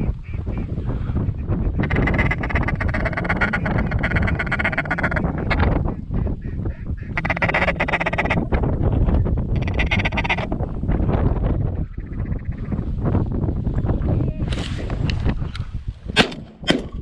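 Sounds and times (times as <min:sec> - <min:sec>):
duck calling: 0:00.0 - 0:00.7, 0:01.4 - 0:08.5, 0:09.6 - 0:10.5.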